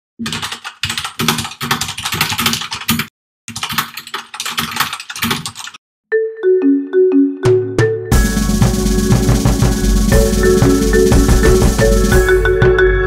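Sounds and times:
rapid keyboard typing: 0.2s - 5.8s, 8.1s - 12.4s
mallet percussion intro music: 6.1s - 13.0s.

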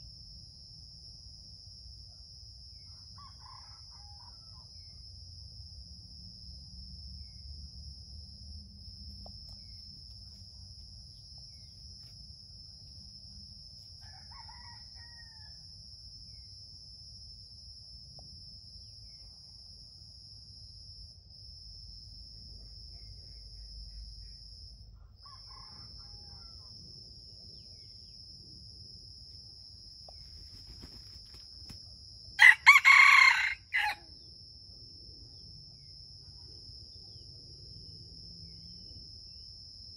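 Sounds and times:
high insect whine: 0.0s - 39.9s
rooster crowing: 3.0s - 4.8s, 14.0s - 15.6s, 25.0s - 26.8s, 32.4s - 34.1s.

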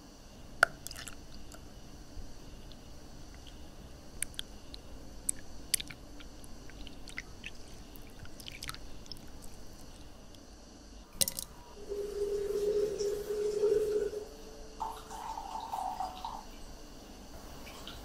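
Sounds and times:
steady hum: 0.0s - 18.0s
juice pouring: 0.6s - 1.6s, 5.3s - 9.7s, 11.2s - 16.5s.

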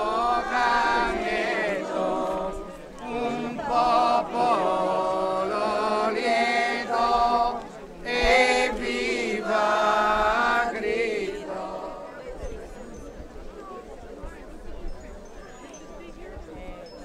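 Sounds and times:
group singing a hymn: 0.0s - 12.4s.

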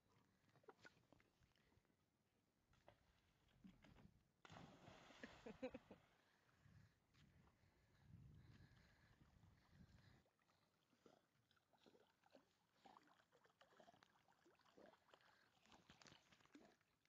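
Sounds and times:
dog paddling in water: 9.4s - 17.0s.

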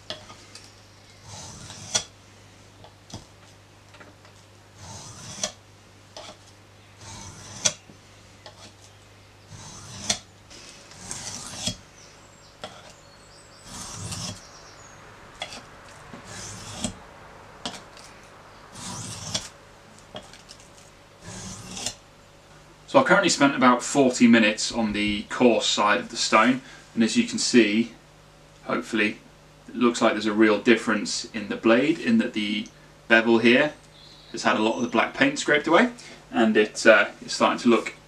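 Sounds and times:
knife scraping on sharpening stone: 1.2s - 2.1s, 4.8s - 5.6s, 7.0s - 7.8s, 9.5s - 10.2s, 12.6s - 13.0s, 13.7s - 14.4s.

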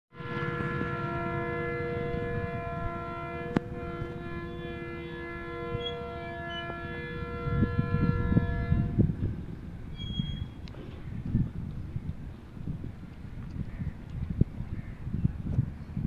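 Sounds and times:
locomotive horn chord: 0.1s - 9.2s.

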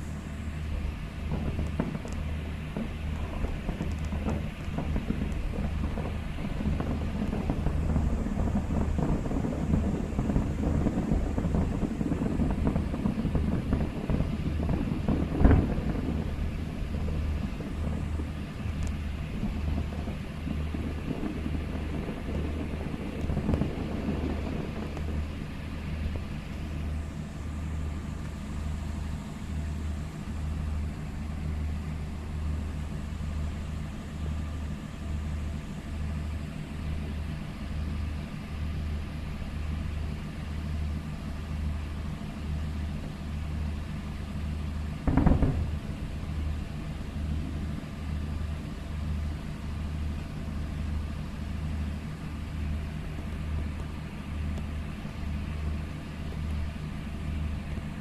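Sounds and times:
firework bang: 0.0s - 29.3s, 44.9s - 48.8s
distant fireworks crackling: 0.0s - 58.0s
low rumble: 0.0s - 58.0s.

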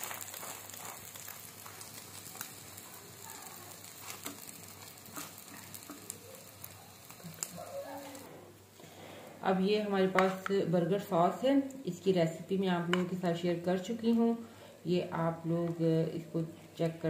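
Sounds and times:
metal spatula on pan: 0.0s - 8.2s
egg sizzling in oil: 0.0s - 8.3s.

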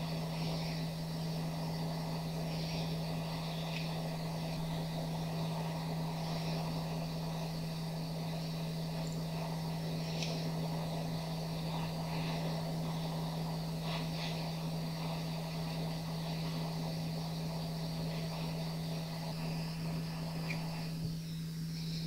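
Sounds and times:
hot air rushing from nozzle: 0.0s - 22.0s
low hum: 0.0s - 22.0s
faint ticks: 2.5s - 4.8s, 10.0s - 10.6s, 20.4s - 21.0s.

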